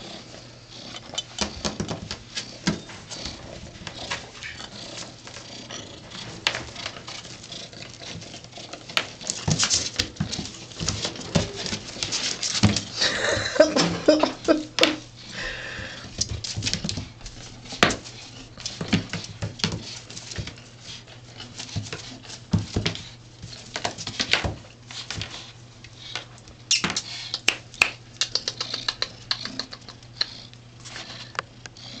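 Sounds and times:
steady low hum: 0.0s - 32.0s
kitten paws pattering on tile: 15.8s - 31.4s.

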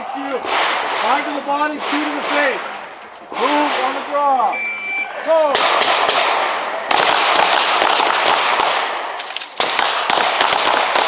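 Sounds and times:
handguns firing rapid shots: 5.5s - 11.0s.

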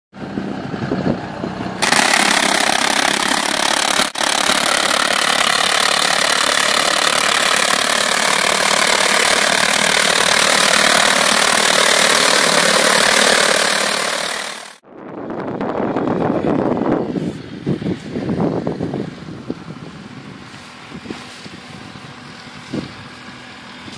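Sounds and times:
tractor running: 0.2s - 23.9s
rushing whir of trunk cleaner: 0.8s - 14.8s.

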